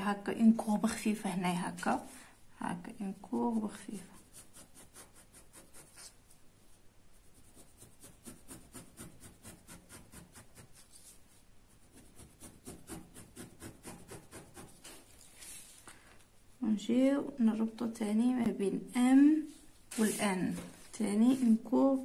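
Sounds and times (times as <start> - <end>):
pen scratching on paper: 3.0 - 6.2, 7.2 - 15.6.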